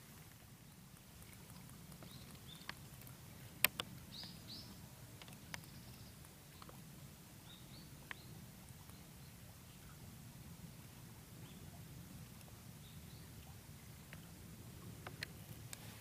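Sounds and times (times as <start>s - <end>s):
low steady rumble: 0.0s - 16.0s
small birds chirping: 0.6s - 6.8s, 7.4s - 10.0s, 12.7s - 13.5s.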